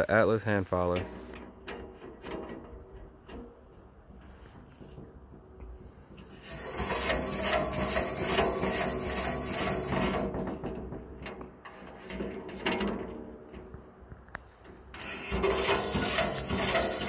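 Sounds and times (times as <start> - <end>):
file rasping against saw tooth: 6.4 - 10.2, 15.0 - 17.0.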